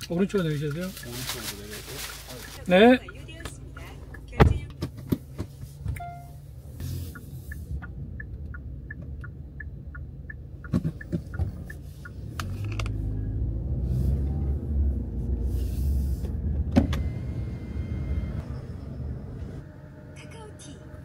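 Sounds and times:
car rumbling moving off: 0:00.0 - 0:21.0
light regular ticking: 0:02.4 - 0:04.4, 0:07.1 - 0:12.6.

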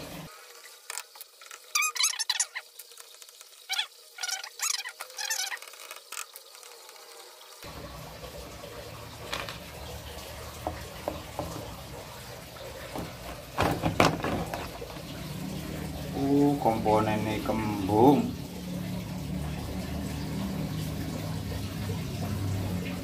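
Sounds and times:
plastic clicks and knocks: 0:12.9 - 0:14.8.

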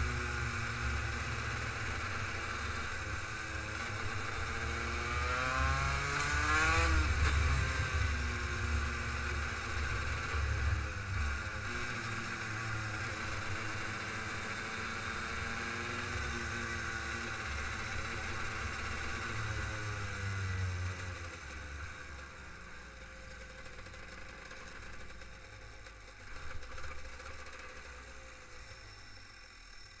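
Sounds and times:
kart engine revving: 0:00.0 - 0:10.7.

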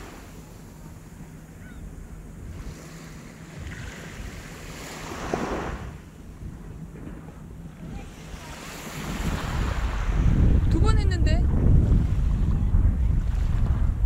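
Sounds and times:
small waves washing onto sand: 0:00.0 - 0:01.4, 0:02.4 - 0:06.5, 0:07.1 - 0:10.7
wind buffeting microphone: 0:00.7 - 0:14.0.

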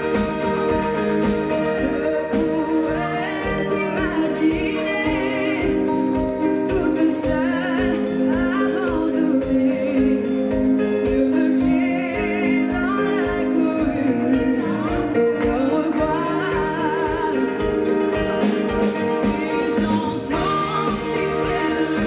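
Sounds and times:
live pop band playing: 0:00.0 - 0:22.0
several people singing: 0:19.3 - 0:22.0.

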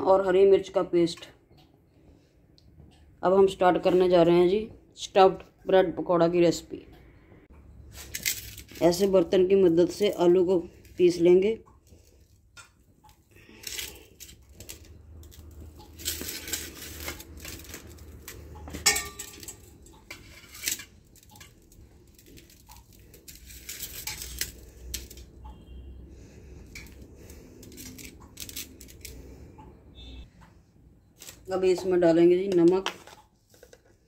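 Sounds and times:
potatoes squashing: 0:08.0 - 0:25.4
steel bowl clinking on steel plate: 0:18.6 - 0:21.6.

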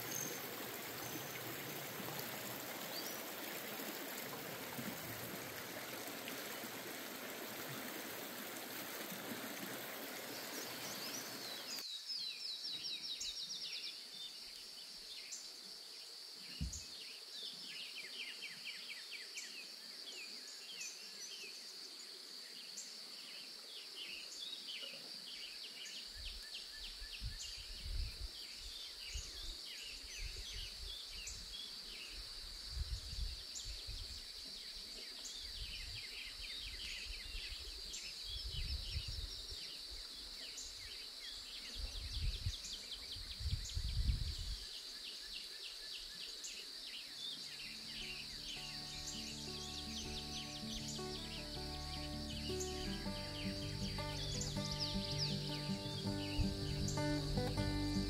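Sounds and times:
mountain stream rushing: 0:00.0 - 0:11.8, 0:47.7 - 0:58.0
birds chirping: 0:10.1 - 0:11.8, 0:47.4 - 0:58.0
high insect buzz: 0:47.4 - 0:58.0.

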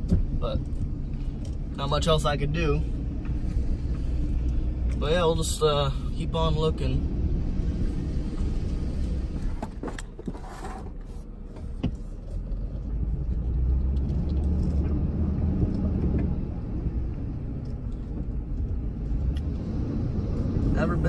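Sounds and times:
truck engine drone from cab: 0:00.0 - 0:21.0.

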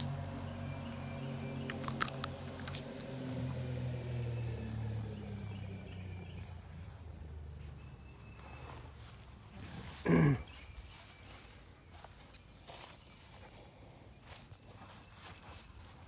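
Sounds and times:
beaks pecking clicks: 0:01.6 - 0:03.4.

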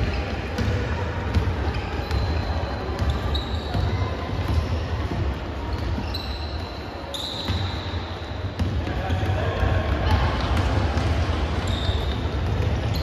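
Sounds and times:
basketball bouncing on court: 0:00.0 - 0:06.5, 0:07.4 - 0:13.0
shoe squeaks: 0:01.6 - 0:04.7, 0:05.7 - 0:08.3, 0:11.6 - 0:13.0.

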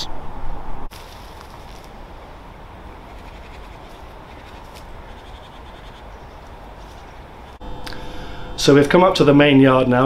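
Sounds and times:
outdoor background noise: 0:00.0 - 0:10.0
rustling of undergrowth underfoot: 0:00.9 - 0:05.3, 0:06.1 - 0:07.6.

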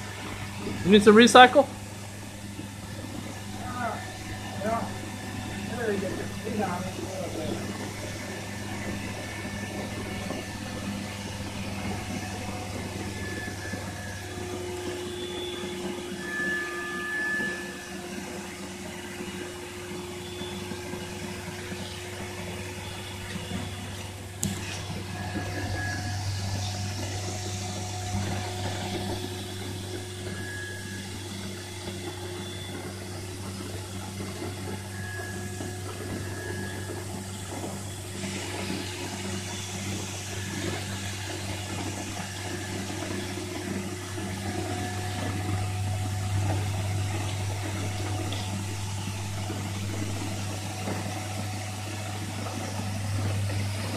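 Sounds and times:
insulation spray hissing from hose: 0:00.0 - 0:15.7
steady low hum: 0:00.0 - 0:53.9.

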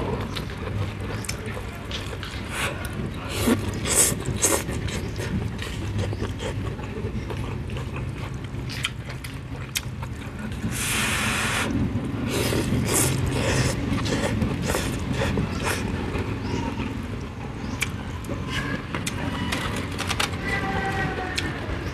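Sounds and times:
noodles being slurped and chewed: 0:00.0 - 0:15.9.

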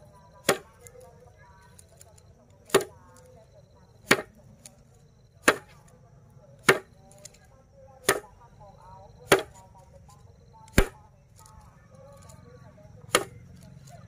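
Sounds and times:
grass stalks whacking a board: 0:00.4 - 0:01.0, 0:01.7 - 0:03.3, 0:04.0 - 0:04.8, 0:05.4 - 0:05.9, 0:06.6 - 0:07.4, 0:08.0 - 0:08.4, 0:09.2 - 0:09.8, 0:10.6 - 0:11.6, 0:13.0 - 0:14.0.

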